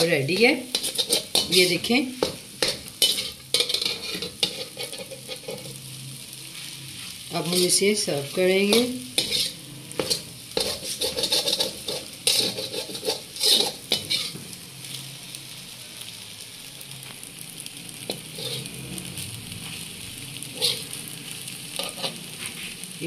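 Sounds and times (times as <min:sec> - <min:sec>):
metal spoon scraping metal pan: 0:00.0 - 0:05.8, 0:08.6 - 0:14.4, 0:18.1 - 0:18.8, 0:20.4 - 0:21.0, 0:21.7 - 0:22.6
halwa sizzling in pan: 0:00.0 - 0:23.0.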